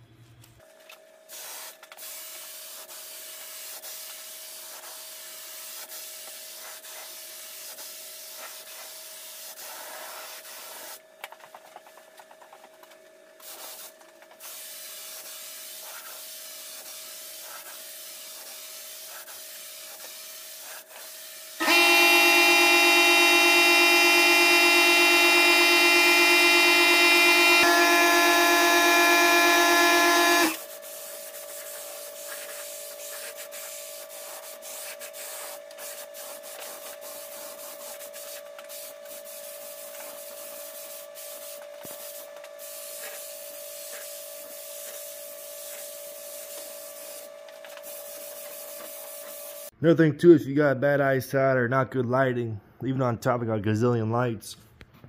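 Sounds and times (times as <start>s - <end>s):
spray gun hissing: 1.3s - 11.0s, 13.4s - 49.7s
loud multi-tone drone: 21.6s - 30.6s
thin steady tone: 21.6s - 30.8s.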